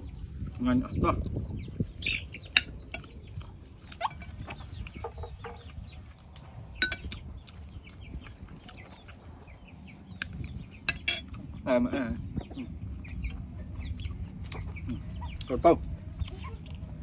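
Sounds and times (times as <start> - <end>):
chickens clucking: 0.0 - 17.0
cutlery clinking on plate: 6.8 - 7.1, 10.9 - 11.3.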